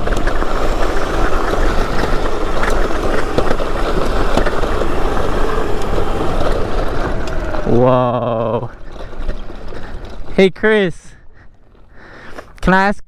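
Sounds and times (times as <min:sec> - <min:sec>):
small stones clicking: 0:00.0 - 0:10.4
tyres rolling over gravel: 0:00.0 - 0:13.0.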